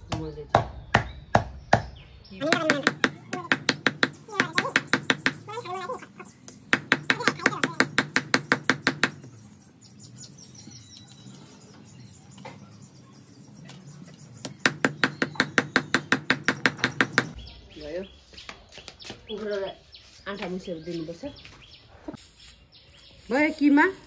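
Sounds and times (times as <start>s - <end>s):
knife chopping meat on wood: 0.1s - 5.5s, 6.7s - 9.2s, 14.6s - 17.4s.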